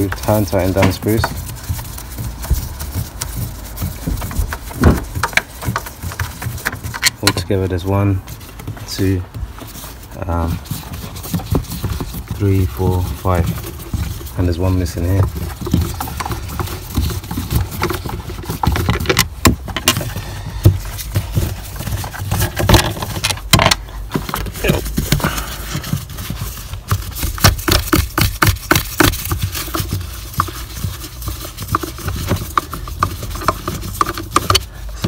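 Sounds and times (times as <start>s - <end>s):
panel handled with knocks and scrapes: 4.0s - 7.5s.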